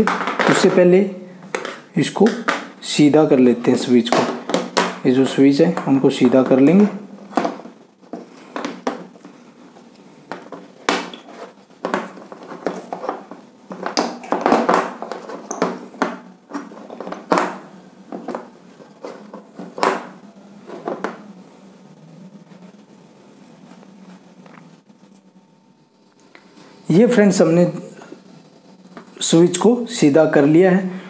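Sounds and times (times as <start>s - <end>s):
plastic boxes clicking and scraping: 0.0s - 0.9s, 1.5s - 2.7s, 4.0s - 9.2s, 10.3s - 21.2s.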